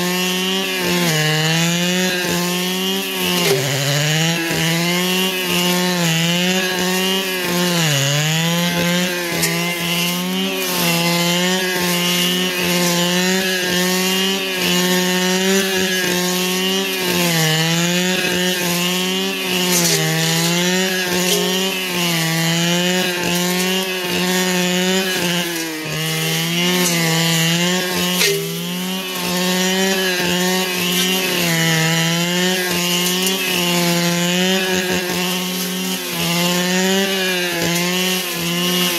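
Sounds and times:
brush cutter engine running: 0:00.0 - 0:38.9.

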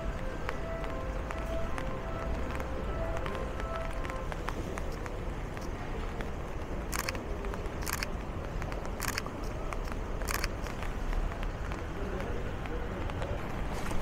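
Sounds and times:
camera shutter clicking: 0:06.9 - 0:07.2, 0:07.8 - 0:08.1, 0:09.0 - 0:09.3, 0:10.3 - 0:10.5.

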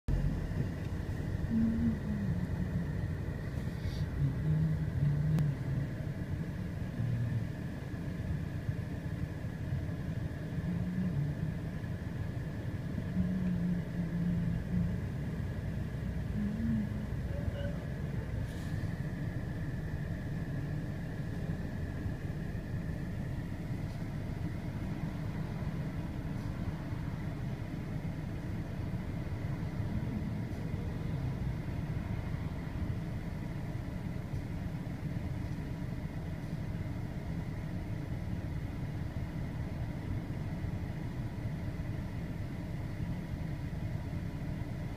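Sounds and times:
vehicle rumble: 0:00.0 - 0:44.9
faint thin high tone: 0:17.3 - 0:17.9.

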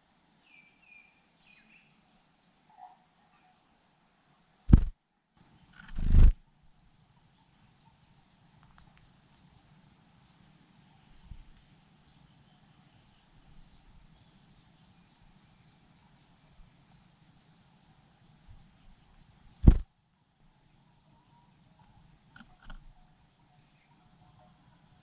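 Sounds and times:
insect chirring: 0:00.0 - 0:25.0
loud low thumps: 0:04.7 - 0:04.9, 0:19.6 - 0:19.8.

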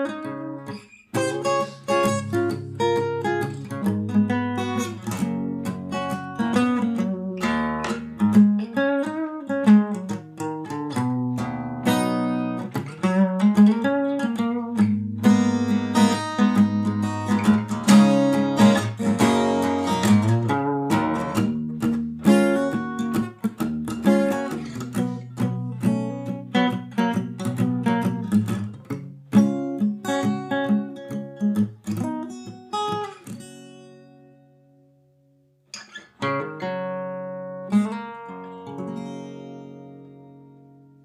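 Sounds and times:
acoustic guitar music: 0:00.0 - 0:41.0.

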